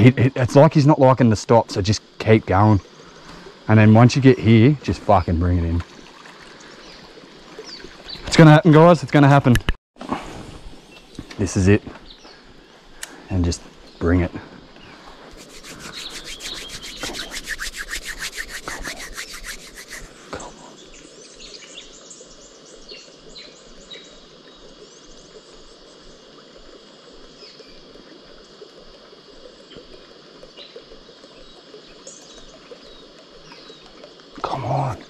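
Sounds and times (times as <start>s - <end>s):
insects chirping: 0.0s - 9.5s, 10.8s - 35.0s
birds chirping: 10.9s - 24.2s
fishing reel ticking: 15.4s - 20.0s.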